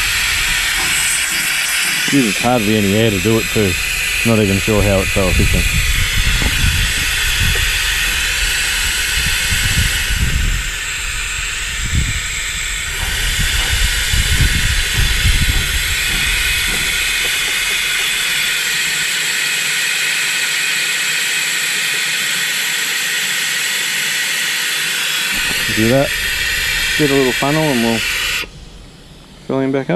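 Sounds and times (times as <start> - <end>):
low thumps and rumbles: 0.0 - 19.0, 25.3 - 29.5
compressed air hissing: 0.0 - 29.9.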